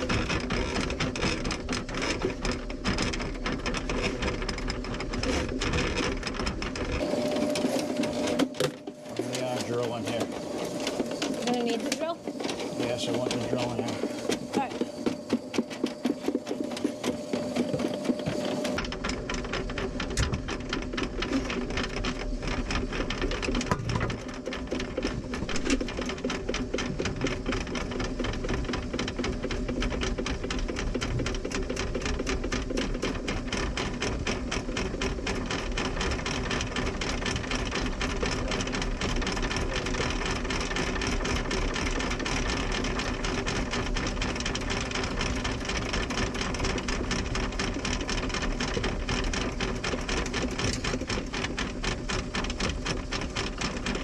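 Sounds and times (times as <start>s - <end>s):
drain cleaner cable rattling: 0.0s - 54.0s
motor whine: 4.9s - 26.4s.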